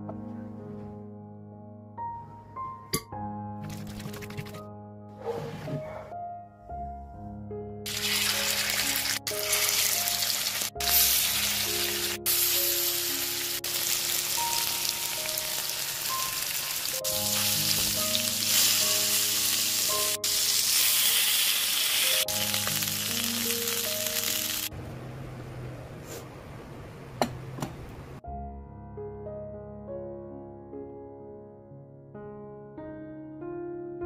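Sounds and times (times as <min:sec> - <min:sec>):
background music: 0:00.0 - 0:24.8, 0:28.2 - 0:34.0
fish sizzling in hot oil: 0:07.9 - 0:24.7.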